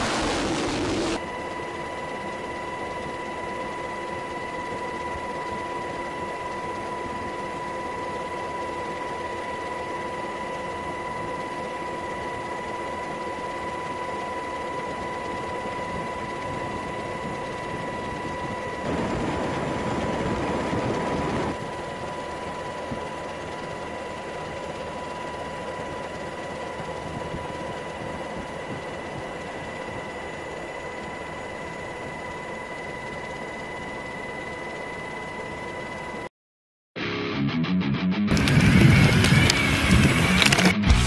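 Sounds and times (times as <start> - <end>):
rush of noise: 0.0 - 1.2
mechanical drone: 0.0 - 3.9, 15.0 - 35.6, 37.1 - 41.0
high whine: 0.0 - 36.3, 37.0 - 41.0.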